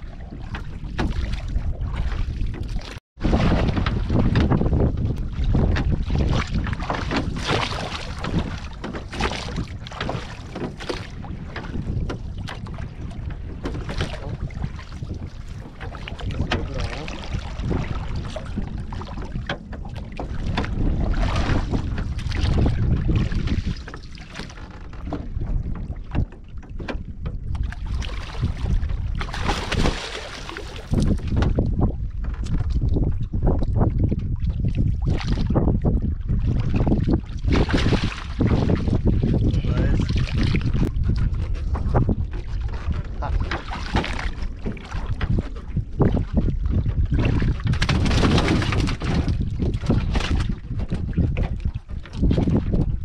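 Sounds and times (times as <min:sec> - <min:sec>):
waves lapping against wooden boat: 0:00.0 - 0:53.0
wind buffeting microphone: 0:00.0 - 0:53.0.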